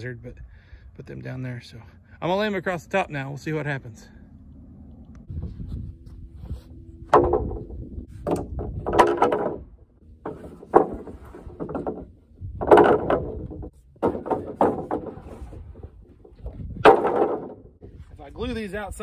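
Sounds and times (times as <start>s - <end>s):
wooden boards knocking and clattering: 7.0s - 17.9s.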